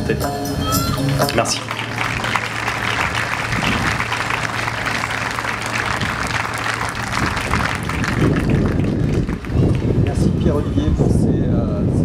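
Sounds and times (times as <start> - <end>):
audience applauding: 1.0 - 10.2.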